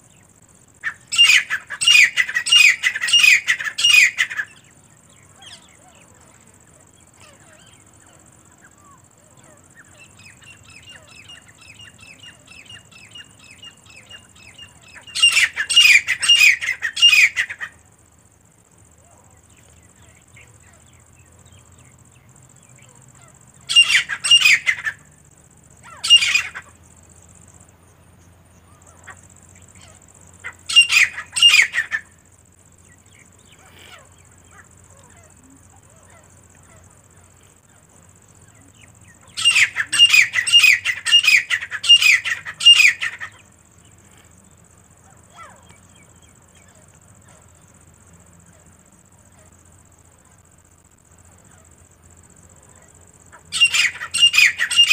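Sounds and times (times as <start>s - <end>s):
francolins calling: 0.0s - 54.9s.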